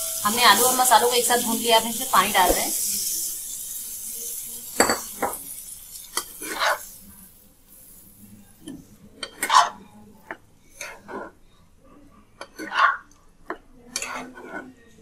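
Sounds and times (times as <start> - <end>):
water sizzling in hot pan: 0.0 - 8.7
spatula scraping and knocking pan: 10.7 - 11.4, 14.0 - 14.7.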